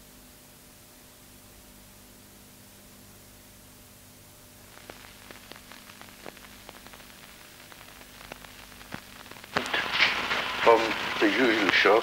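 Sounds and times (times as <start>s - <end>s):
film soundtrack hiss and hum: 0.0s - 12.0s
crackling clicks and pops: 3.2s - 12.0s.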